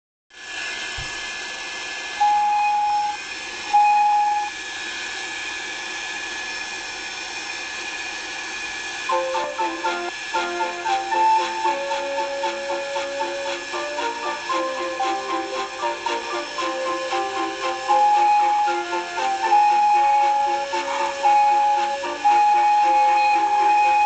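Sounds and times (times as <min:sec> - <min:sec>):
train whistle toots: 0:02.2 - 0:04.5, 0:09.1 - 0:24.0
music with bouncy notes: 0:09.1 - 0:24.0
steady hiss: 0:09.1 - 0:24.0.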